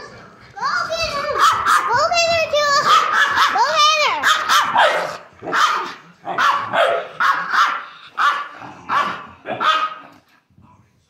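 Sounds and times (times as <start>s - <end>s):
small dog barking: 1.3s - 2.0s, 2.8s - 10.1s.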